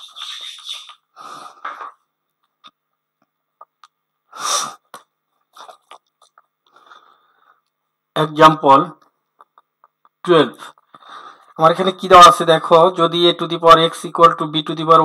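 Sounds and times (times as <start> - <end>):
paper rustling: 0.0 - 1.0.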